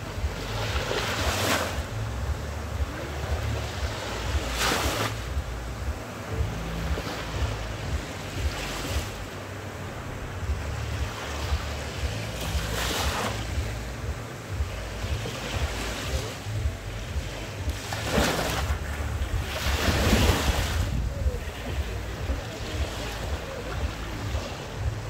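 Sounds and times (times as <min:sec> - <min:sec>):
small waves breaking on sand: 0:00.0 - 0:25.0
wind rumble on microphone: 0:00.0 - 0:25.0.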